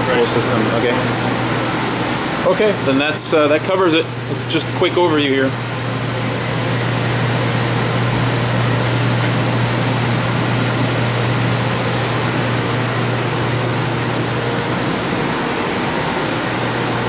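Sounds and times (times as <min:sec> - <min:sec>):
fan air rush: 0:00.0 - 0:17.0
low hum: 0:05.5 - 0:17.0.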